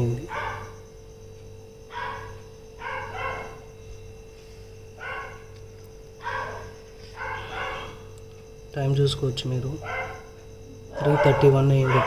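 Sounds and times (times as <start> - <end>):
steady low hum: 0.0 - 12.0
dog barking: 0.3 - 0.8, 1.9 - 3.7, 5.0 - 5.5, 6.2 - 8.1, 9.8 - 10.3, 10.9 - 12.0.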